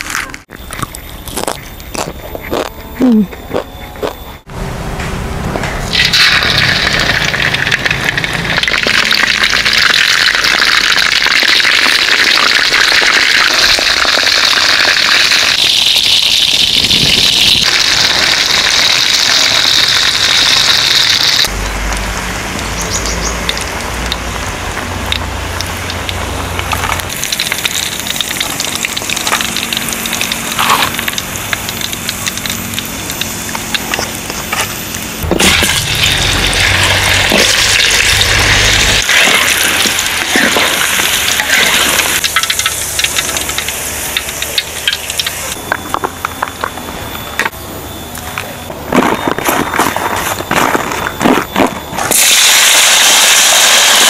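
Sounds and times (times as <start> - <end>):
oil sizzling in a wok: 5.9 - 46.4, 52.1 - 54.0.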